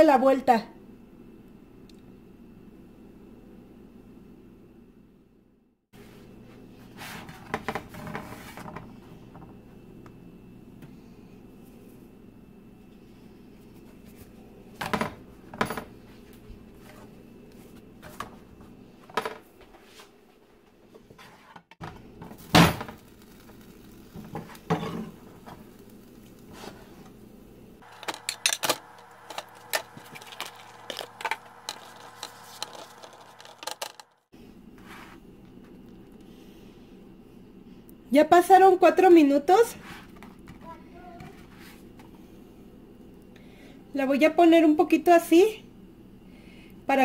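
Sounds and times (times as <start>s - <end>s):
steady low hum: 21.8s - 38.1s.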